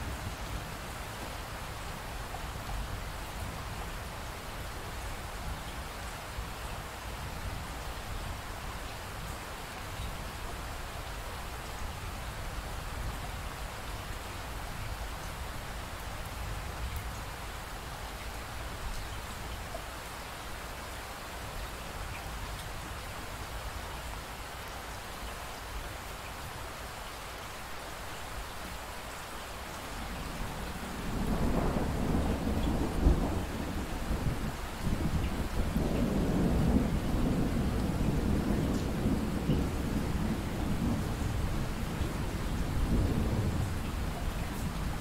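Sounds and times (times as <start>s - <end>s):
rain falling: 0.0s - 45.0s
thunder rumble: 30.4s - 45.0s.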